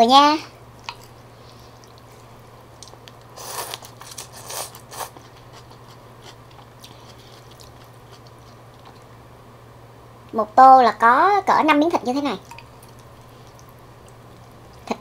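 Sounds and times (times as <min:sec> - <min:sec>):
faint chewing: 0:00.8 - 0:09.1, 0:12.4 - 0:15.0.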